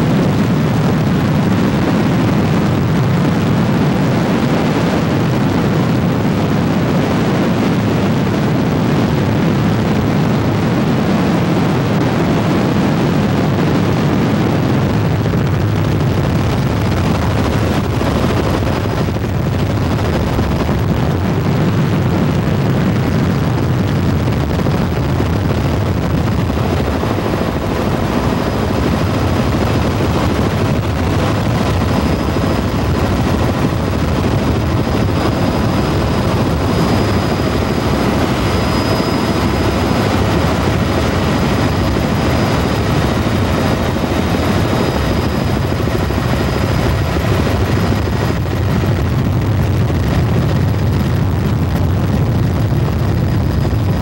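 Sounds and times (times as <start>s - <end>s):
helicopter engine and rotor drone: 0.0s - 54.0s
faint high whine: 31.2s - 48.4s.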